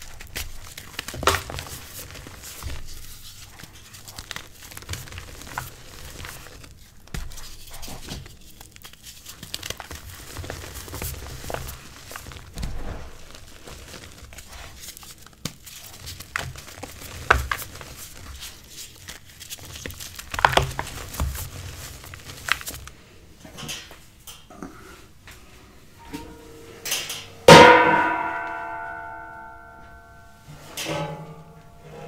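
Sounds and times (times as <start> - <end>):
chalk crunching in hands: 0.0 - 22.8
chalk chunks cracking: 0.0 - 22.9.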